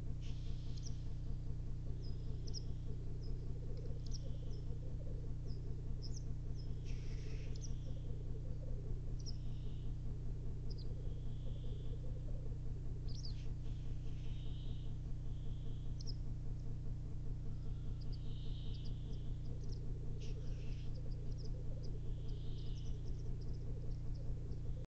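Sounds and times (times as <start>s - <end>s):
steady low hum: 0.0s - 24.9s
short hissing bird calls: 0.2s - 1.1s, 6.8s - 7.9s, 20.2s - 23.5s
grouse bubbling coo: 2.6s - 5.9s, 6.9s - 9.6s, 10.6s - 12.6s, 19.3s - 24.9s.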